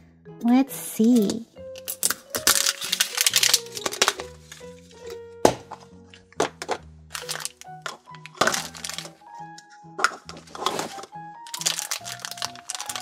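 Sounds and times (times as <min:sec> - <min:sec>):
light background music: 0:00.0 - 0:13.0
plastic egg halves snapping apart: 0:01.2 - 0:13.0
plastic wrapper crinkling: 0:01.8 - 0:05.2, 0:06.1 - 0:13.0
tissue paper rustling: 0:02.0 - 0:05.0, 0:07.1 - 0:09.2, 0:10.1 - 0:13.0.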